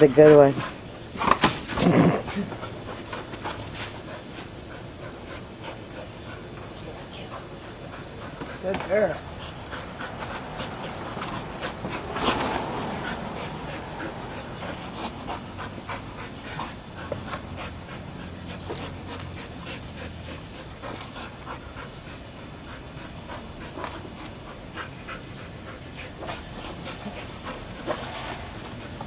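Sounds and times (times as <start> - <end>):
dog panting: 0.0 - 29.0
ball and paws tapping on concrete: 8.3 - 9.2, 17.0 - 17.6.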